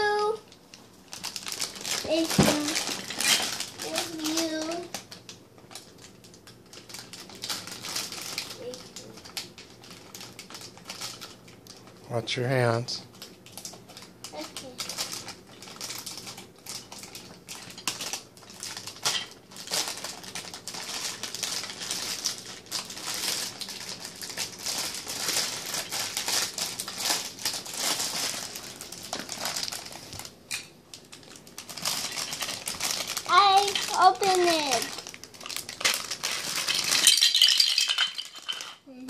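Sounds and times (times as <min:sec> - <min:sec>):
plastic bag crinkling: 0:00.0 - 0:12.0, 0:13.1 - 0:39.0.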